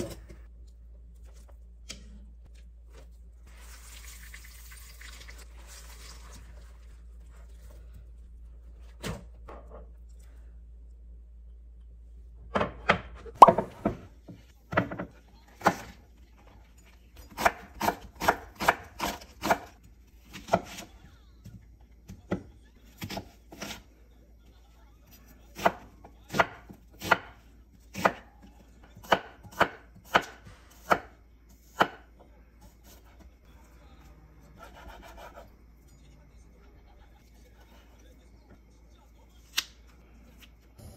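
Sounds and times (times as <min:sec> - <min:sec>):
knife chopping on wooden board: 0:29.0 - 0:31.1.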